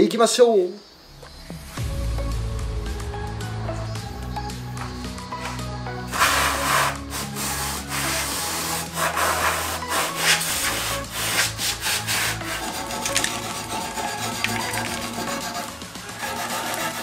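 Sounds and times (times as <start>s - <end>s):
background music: 1.2s - 17.0s
wire brush scraping metal: 6.1s - 17.0s.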